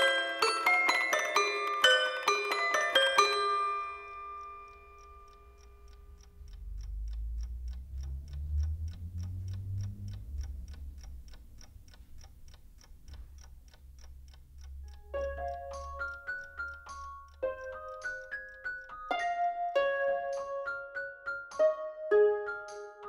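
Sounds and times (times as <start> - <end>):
glockenspiel tune: 0.0 - 6.1, 15.1 - 23.0
alarm clock ticking: 0.0 - 23.0
low rumble: 5.6 - 15.7.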